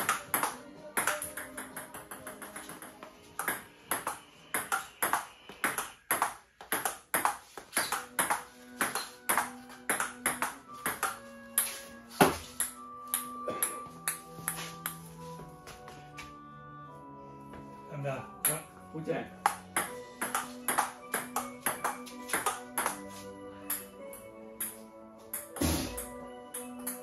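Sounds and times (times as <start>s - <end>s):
ping-pong ball clicking off paddles: 0.0s - 11.7s, 19.4s - 23.0s, 24.6s - 25.6s.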